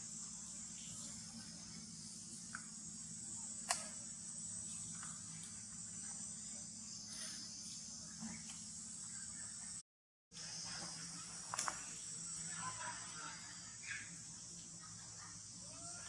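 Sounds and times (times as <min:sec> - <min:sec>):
insect chorus droning: 0:00.0 - 0:16.0
sharp click: 0:03.6 - 0:04.0.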